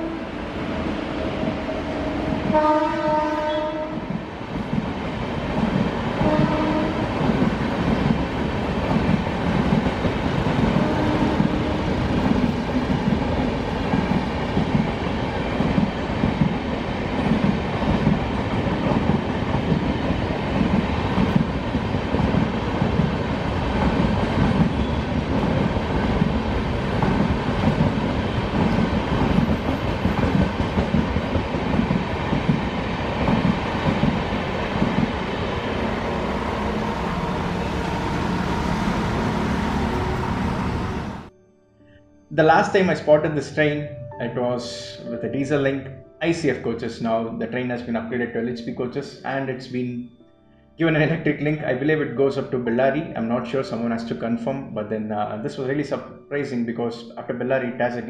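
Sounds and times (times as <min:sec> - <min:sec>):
train horn: 0:00.0 - 0:00.3, 0:02.5 - 0:04.1, 0:06.2 - 0:07.2, 0:10.7 - 0:12.0, 0:38.2 - 0:41.3
train coaches rolling past: 0:00.0 - 0:41.3.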